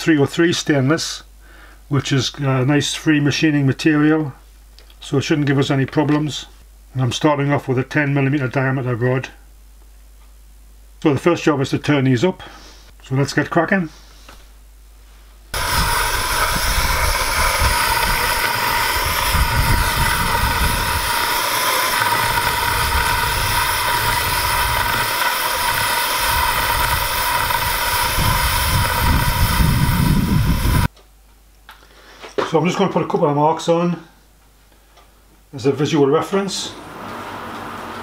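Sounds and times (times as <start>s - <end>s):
low rumble: 15.6s - 30.9s
steam engine whirring rush: 15.6s - 30.9s, 36.6s - 38.0s.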